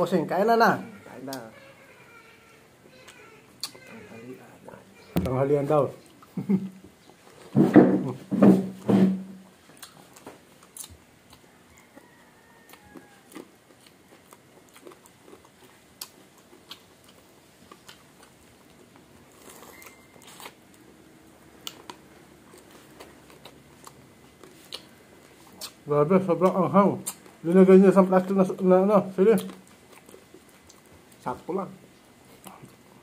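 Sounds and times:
chewing and crunching food: 9.5s - 33.0s.

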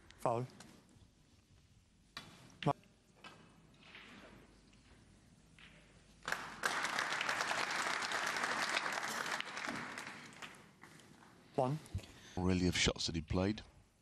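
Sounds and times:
audience applauding: 6.2s - 10.6s.

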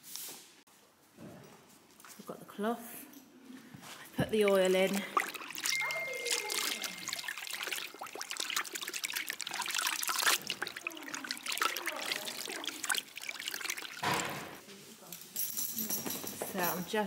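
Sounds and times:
cloth swished in water: 3.8s - 14.6s
water sloshing and splashing: 3.8s - 14.6s.

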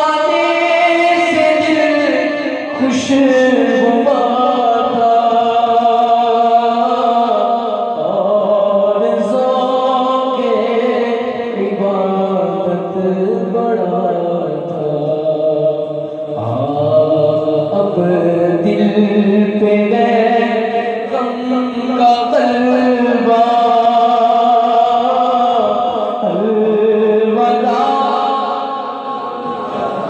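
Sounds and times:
person singing devotional song: 0.0s - 30.0s.

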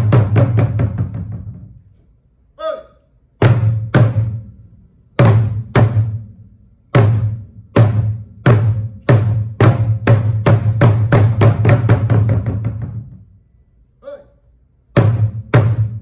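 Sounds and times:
barrel drums: 0.0s - 2.2s, 3.2s - 13.5s, 14.8s - 16.0s
short vocal call: 2.5s - 3.2s, 14.0s - 14.6s.

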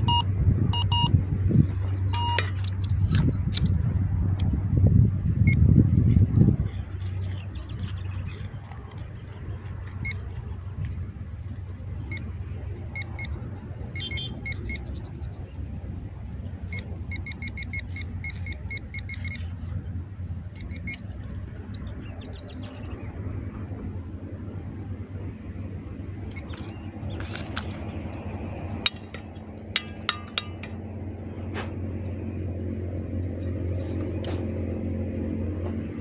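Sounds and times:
metal detector beeping: 0.0s - 1.1s, 2.1s - 2.7s, 5.4s - 5.6s, 9.9s - 10.4s, 12.0s - 12.3s, 12.9s - 14.9s, 16.7s - 19.6s, 20.5s - 21.2s, 26.3s - 27.8s.

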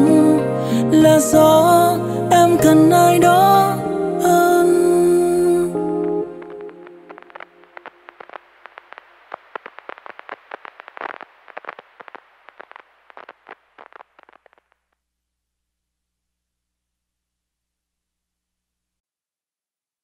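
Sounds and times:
faint hiss: 3.6s - 14.8s
record crackle clicks and pops: 5.0s - 15.0s.

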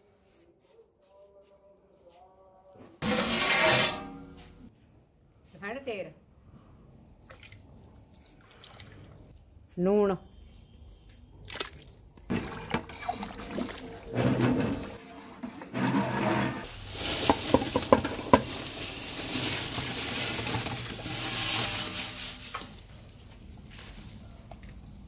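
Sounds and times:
noodles sliding into pot: 14.1s - 22.8s
boiling water hissing: 16.6s - 22.8s.

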